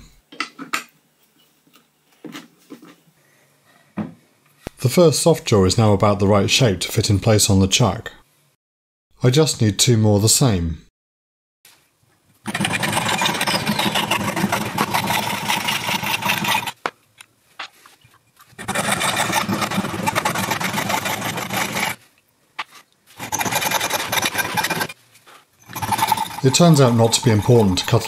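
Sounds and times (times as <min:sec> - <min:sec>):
hacksaw rasping on copper pipe: 0:12.5 - 0:16.8, 0:18.6 - 0:22.0, 0:23.2 - 0:25.0, 0:25.6 - 0:28.0.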